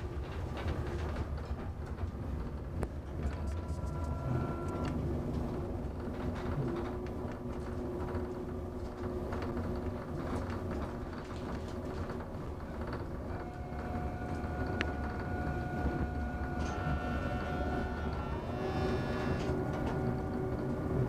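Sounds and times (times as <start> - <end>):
train wheels rumbling on track: 0.0 - 21.0
steady whine: 2.8 - 21.0.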